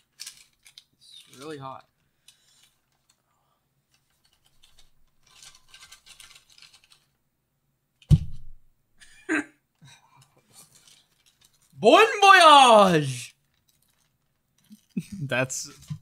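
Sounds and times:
crinkling plastic and foil: 0.0s - 3.2s, 3.9s - 7.1s, 10.5s - 11.8s, 13.4s - 15.0s
loud thump: 8.1s - 8.6s.

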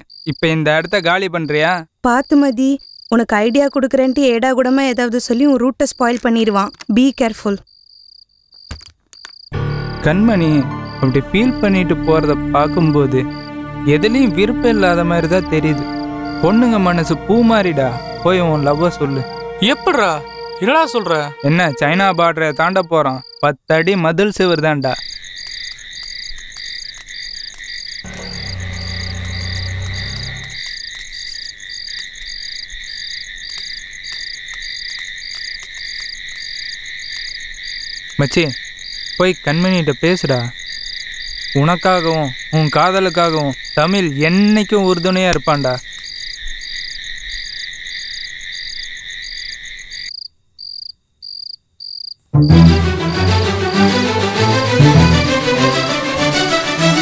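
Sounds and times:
insects and frogs trilling: 0.0s - 11.1s, 15.2s - 52.3s
cricket chirps: 0.0s - 11.2s, 11.9s - 13.8s, 15.2s - 52.3s
crickets droning: 0.0s - 52.3s
background music with strings: 9.6s - 23.3s, 52.4s - 57.0s
car engine humming: 28.1s - 30.6s.

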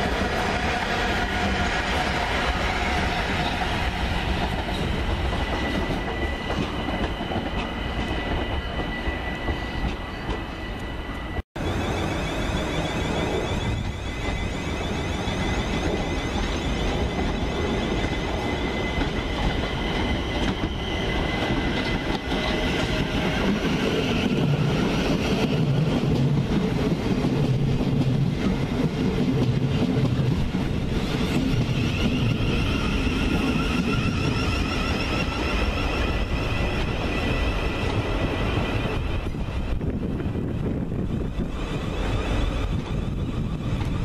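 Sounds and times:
high train whine: 0.0s - 44.0s
train wheels rumbling on rail: 0.0s - 44.0s.

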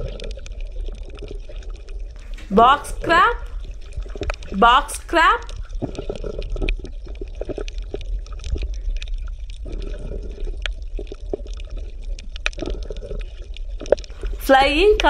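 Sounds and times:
small irregular clicks: 0.0s - 2.5s, 5.4s - 14.4s
underwater bubbling and gurgling: 0.0s - 2.5s, 3.4s - 4.6s, 5.4s - 14.5s.

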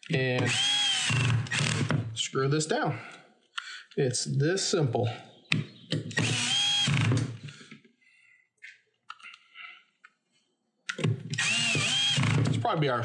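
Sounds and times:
cordless screw gun whirring: 0.4s - 2.1s, 6.1s - 7.5s, 11.3s - 12.6s.

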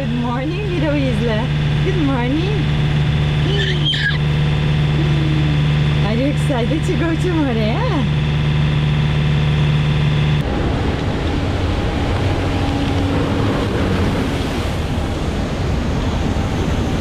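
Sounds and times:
boat engine humming: 0.0s - 17.0s
faint engine drone: 0.0s - 17.0s
water rushing: 0.0s - 17.0s.

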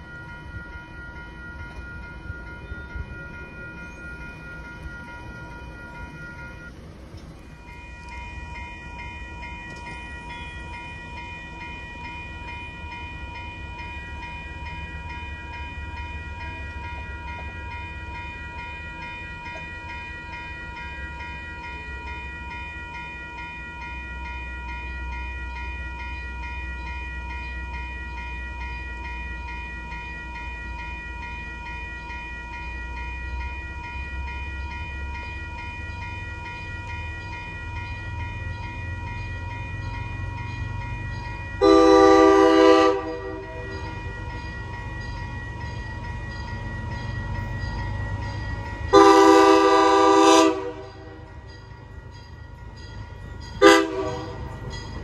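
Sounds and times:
crossing warning bell dinging: 0.0s - 55.0s
train rumbling: 0.0s - 55.0s.

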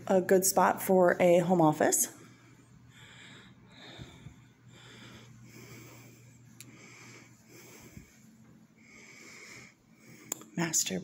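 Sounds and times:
low steady hum: 0.0s - 11.0s
faint breathing: 2.1s - 10.6s.

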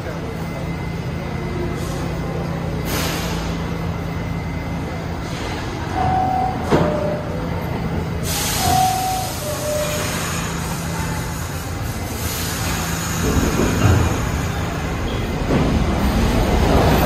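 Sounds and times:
subway train equipment humming: 0.0s - 17.0s
air hiss: 8.2s - 14.3s.

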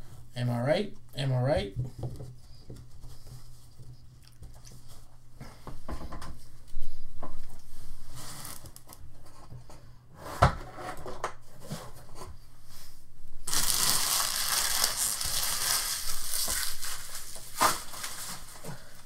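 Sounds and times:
packaging being crumpled: 13.4s - 19.0s.

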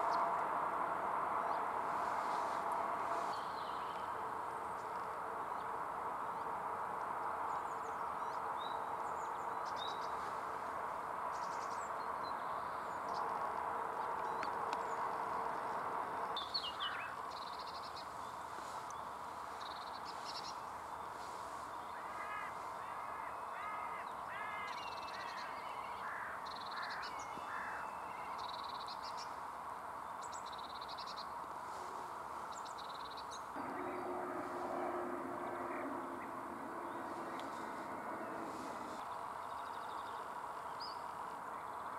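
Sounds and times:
hazy background noise: 0.0s - 41.9s
other birds: 16.4s - 29.4s, 30.2s - 41.9s.

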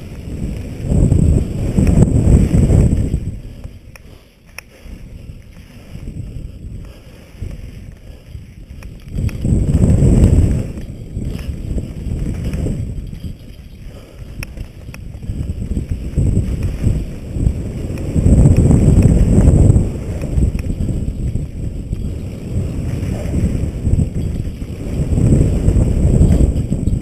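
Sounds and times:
bike tyres on dirt: 0.0s - 27.0s
wind buffeting microphone: 0.0s - 27.0s
sharp clicks and rattles: 7.4s - 17.0s.

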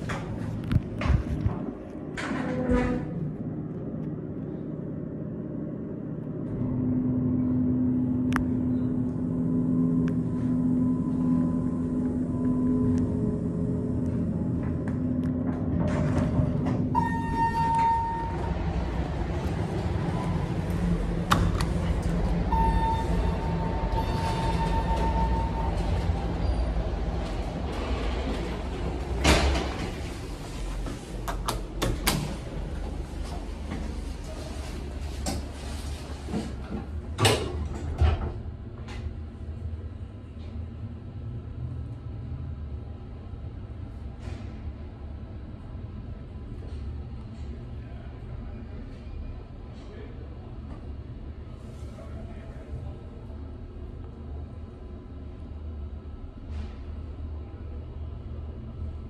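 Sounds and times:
steady low rumble: 3.1s - 59.0s
elevator signal beeps: 16.9s - 18.8s, 21.9s - 26.8s.

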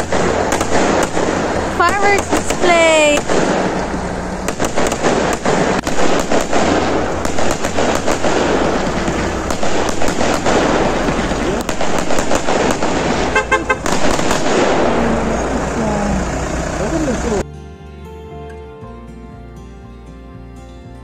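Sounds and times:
fireworks cracks and bangs: 0.0s - 15.7s
fireworks crackle: 0.0s - 15.8s.

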